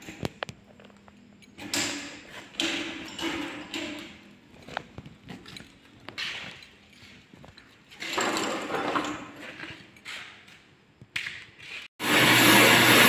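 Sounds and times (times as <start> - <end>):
drain-cleaning machine running: 12.0 - 13.0.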